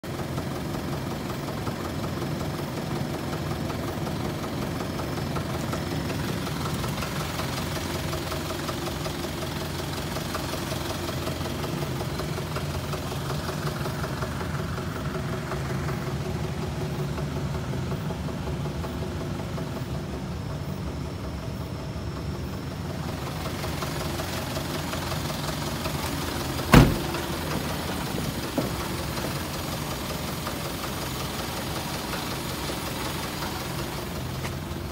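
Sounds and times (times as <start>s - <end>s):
diesel engine idling with clatter: 0.0s - 34.9s
sharp knock: 26.7s - 27.2s.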